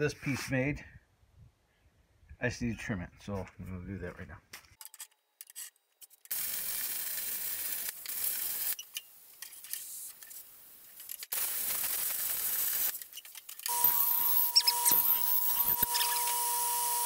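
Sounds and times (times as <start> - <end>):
power shear cutting sheet metal: 13.7 - 17.0.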